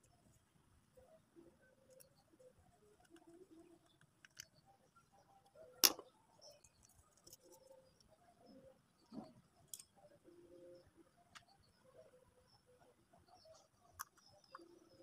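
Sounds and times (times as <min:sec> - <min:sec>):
clicks of handling small parts: 0:03.0 - 0:04.6, 0:05.4 - 0:08.2, 0:09.6 - 0:10.0.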